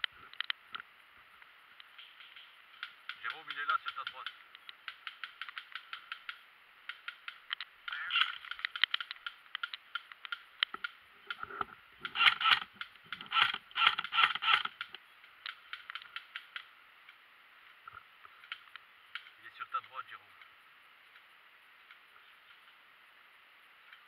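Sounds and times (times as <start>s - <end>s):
sharp clicks and ticks: 1.8s - 17.2s, 17.8s - 20.5s.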